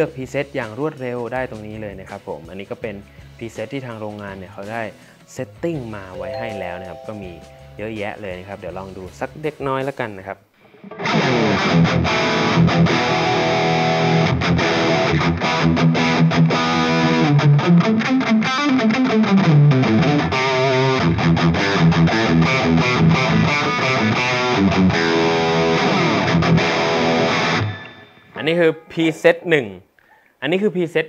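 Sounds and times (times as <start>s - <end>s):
distorted electric guitar riff: 10.7s - 28.4s.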